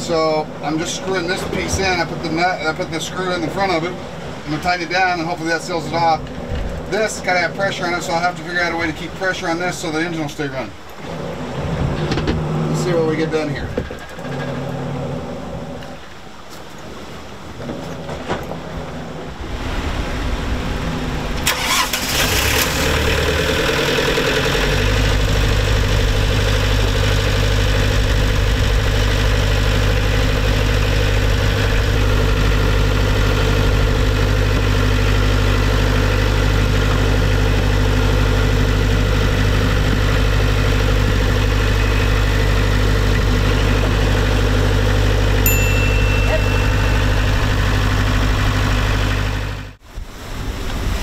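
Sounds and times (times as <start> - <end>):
generator engine starting and running: 19.6 - 49.8.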